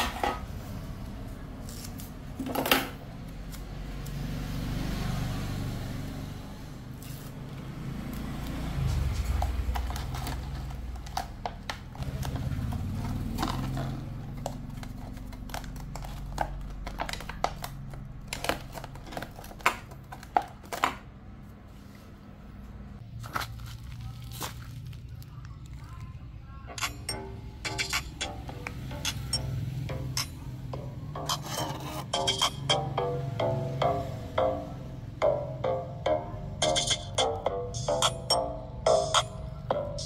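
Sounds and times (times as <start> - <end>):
plastic and tape clicks and crinkles: 9.2 - 21.1, 23.1 - 26.9.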